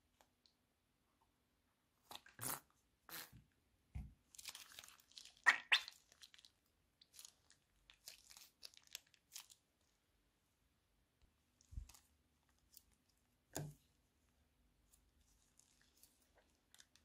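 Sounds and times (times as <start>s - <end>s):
wet slime squishes: 4.2s - 10.0s, 14.8s - 17.0s
plastic bag crinkling: 7.2s - 9.6s.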